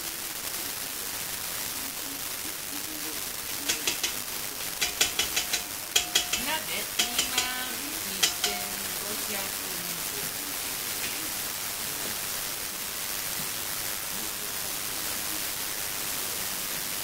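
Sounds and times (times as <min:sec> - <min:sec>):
steady hiss: 0:00.0 - 0:17.0
spatula clinking on metal pot: 0:03.7 - 0:04.2, 0:04.8 - 0:09.0.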